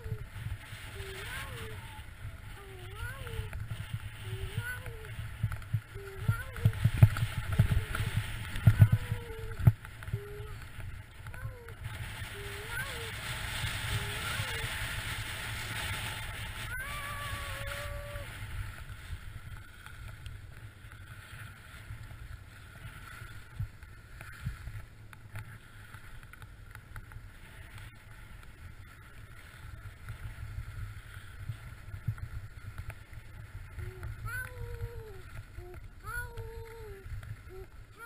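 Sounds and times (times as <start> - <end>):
wind buffeting microphone: 0.0 - 25.0
skis sliding on snow: 0.0 - 38.0.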